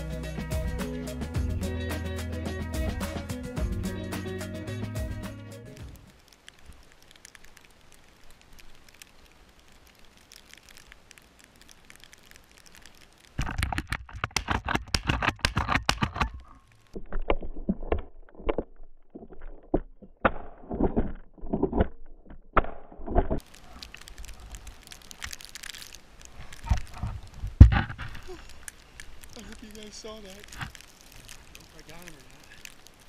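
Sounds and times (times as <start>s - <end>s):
faint crackling: 5.7s - 20.1s, 23.1s - 33.0s.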